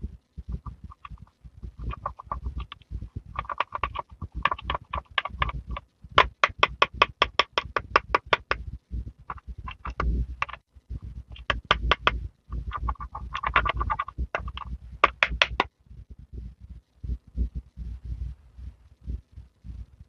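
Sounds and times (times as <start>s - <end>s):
rapid tapping on plastic: 0.0s - 15.7s
plastic tool scraping eyeshadow: 0.5s - 8.6s, 9.2s - 10.6s, 11.2s - 15.7s.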